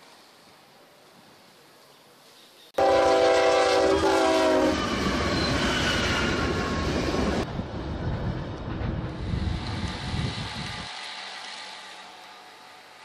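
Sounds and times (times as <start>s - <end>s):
train horn blast: 2.8s - 6.3s
train rumbling: 2.8s - 13.0s.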